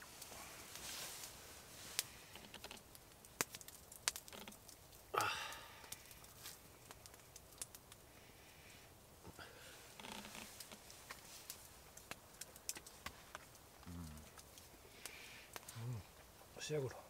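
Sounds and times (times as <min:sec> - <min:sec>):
fire pops: 0:00.0 - 0:08.2, 0:09.2 - 0:16.8
campfire crackling: 0:00.0 - 0:17.0
breathy noise: 0:05.1 - 0:07.1, 0:08.1 - 0:11.6, 0:13.8 - 0:16.1.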